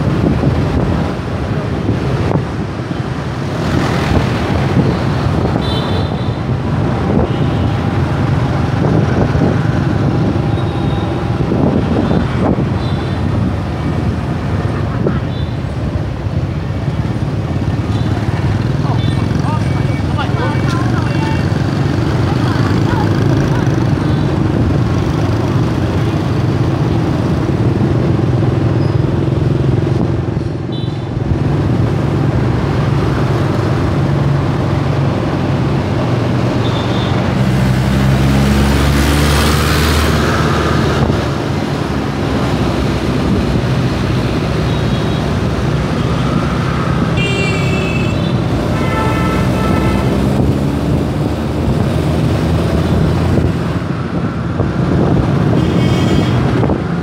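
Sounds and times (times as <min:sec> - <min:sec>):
passing traffic rush: 0:00.0 - 0:57.0
horns tooting: 0:47.2 - 0:50.4.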